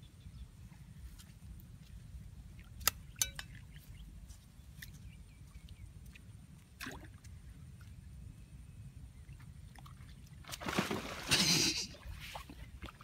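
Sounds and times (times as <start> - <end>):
water splash: 10.4 - 13.0.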